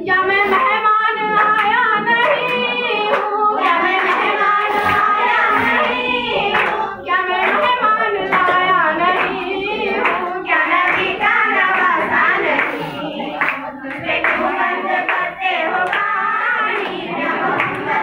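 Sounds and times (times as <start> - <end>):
girl singing into a microphone: 0.0 - 12.2
hand claps: 0.4 - 18.0.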